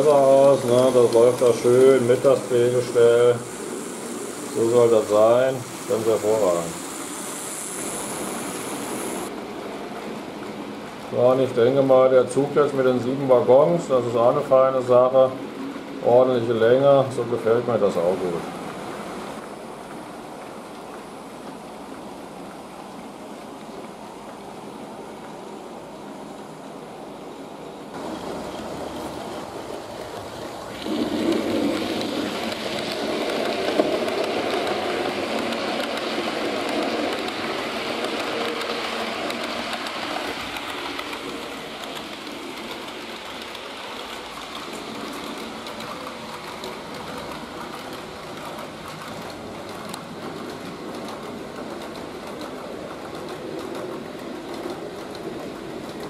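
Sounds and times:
locomotive motor: 0:00.0 - 0:09.4, 0:27.9 - 0:56.0
model train wheels on rails: 0:00.0 - 0:56.0.

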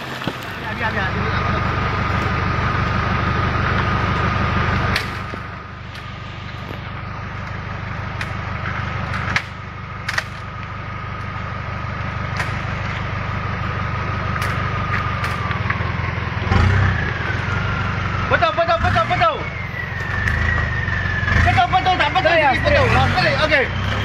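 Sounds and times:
high whine: 0:00.0 - 0:22.2
engine running at low speed: 0:00.0 - 0:24.0.

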